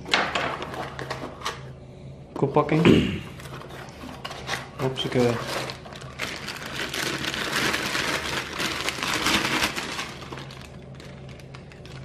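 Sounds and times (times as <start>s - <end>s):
plastic bag crinkling: 3.4s - 12.0s.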